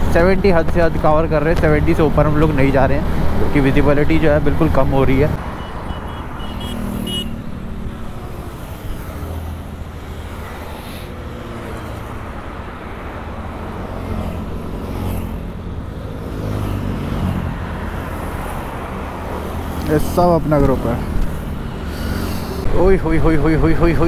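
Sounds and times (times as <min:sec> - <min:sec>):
road noise: 0:00.0 - 0:24.0.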